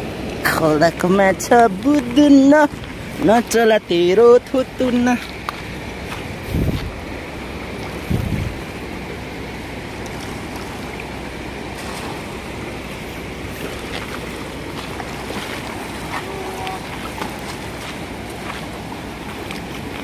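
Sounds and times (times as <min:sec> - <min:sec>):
river rushing: 0:00.0 - 0:20.0
wind on microphone: 0:04.4 - 0:09.0.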